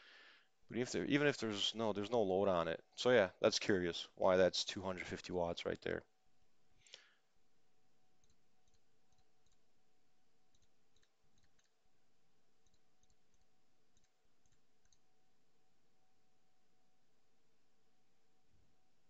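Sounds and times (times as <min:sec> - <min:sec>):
faint electrical hum: 0:00.0 - 0:19.0
computer mouse clicks: 0:08.2 - 0:09.6, 0:10.5 - 0:11.8, 0:12.6 - 0:15.0.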